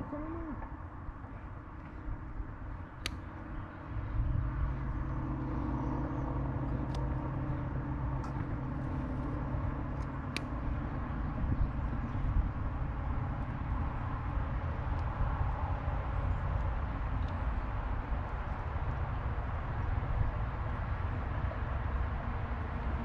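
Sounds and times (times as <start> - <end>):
motor rumbling: 4.0 - 14.2.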